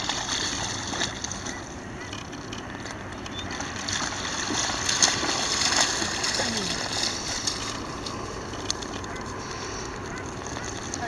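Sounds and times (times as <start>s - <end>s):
dog splashing through water: 0.0s - 1.7s, 3.4s - 8.9s.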